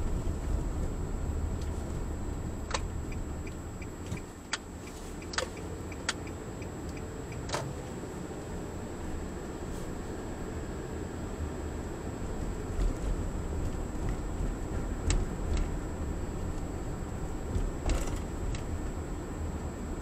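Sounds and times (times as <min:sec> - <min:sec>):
car road and engine rumble: 0:00.0 - 0:20.0
turn signal ticking: 0:00.1 - 0:07.7, 0:12.7 - 0:18.8
sharp clicks in cabin: 0:02.6 - 0:07.7.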